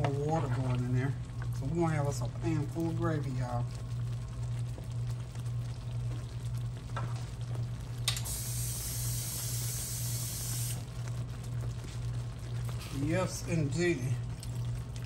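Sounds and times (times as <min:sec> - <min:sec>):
gravy sizzling and bubbling: 0:00.0 - 0:15.0
steady low hum: 0:00.0 - 0:15.0.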